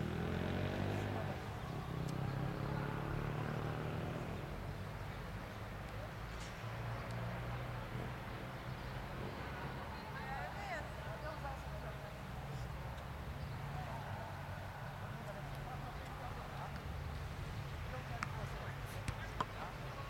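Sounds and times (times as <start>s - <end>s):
vehicle engine droning: 0.0s - 5.0s.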